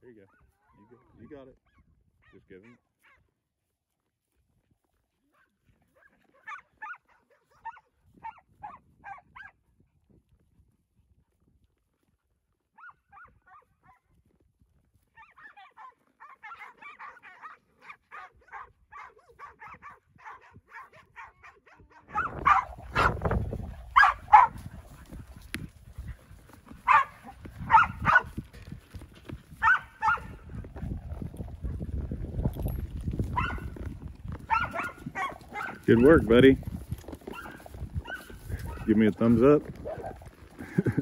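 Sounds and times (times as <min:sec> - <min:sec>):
dogs barking: 0:06.0 - 0:09.6, 0:15.2 - 0:25.1, 0:26.8 - 0:28.4, 0:29.6 - 0:30.4, 0:33.3 - 0:33.8, 0:34.4 - 0:36.3, 0:37.3 - 0:39.0.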